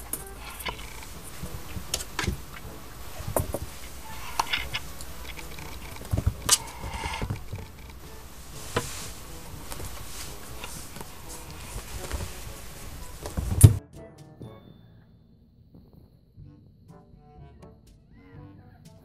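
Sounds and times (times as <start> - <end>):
plastic balls tapping and knocking: 0.0 - 13.8.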